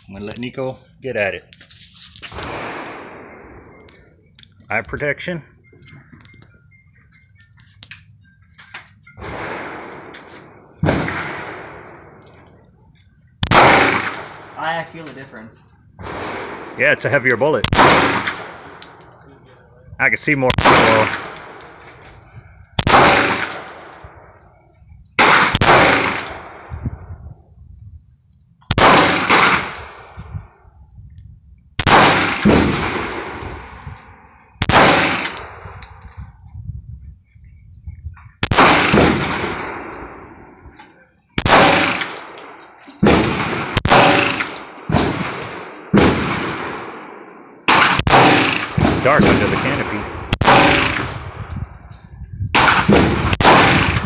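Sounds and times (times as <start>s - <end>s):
echoing pistol shots: 2.5s - 3.7s, 9.2s - 10.0s, 10.8s - 12.1s, 13.4s - 14.6s, 16.0s - 16.8s, 17.6s - 18.8s, 20.5s - 21.7s, 22.8s - 24.0s, 25.2s - 26.7s, 28.7s - 29.9s, 31.8s - 33.5s, 34.6s - 35.8s, 38.4s - 40.0s, 41.4s - 51.3s, 52.6s - 54.0s.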